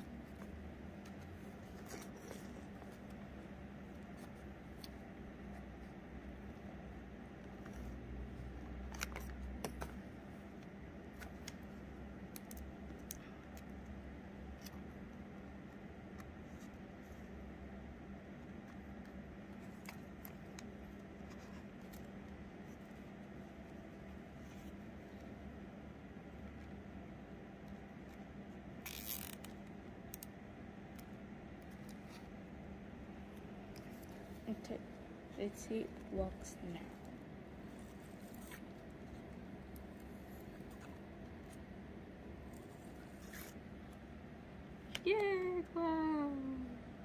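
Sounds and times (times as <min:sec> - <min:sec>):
steady low hum: 0:00.0 - 0:47.0
cable tie zipping: 0:28.8 - 0:29.5, 0:42.5 - 0:43.6.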